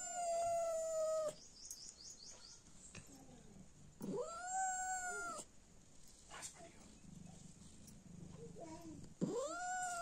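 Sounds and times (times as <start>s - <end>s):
cat meowing: 9.2s - 10.0s.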